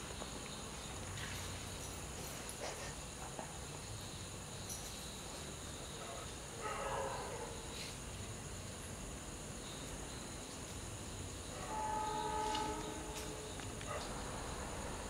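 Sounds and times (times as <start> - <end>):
train horn blast: 11.5 - 13.8.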